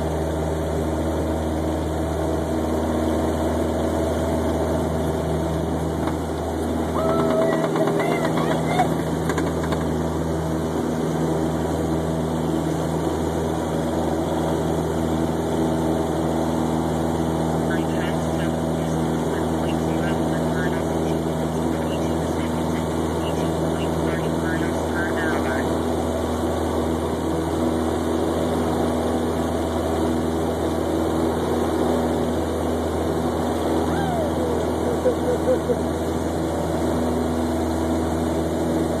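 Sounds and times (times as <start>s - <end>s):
light airplane engine and propeller: 0.0s - 39.0s.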